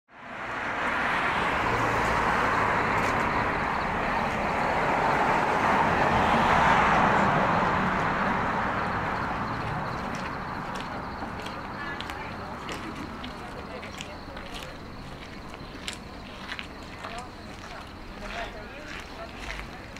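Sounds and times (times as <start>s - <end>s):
car driving past: 0.2s - 13.7s.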